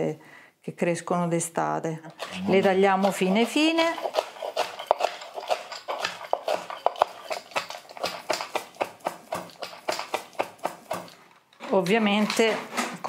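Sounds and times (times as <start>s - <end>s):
knife chopping on wooden board: 2.2s - 11.2s.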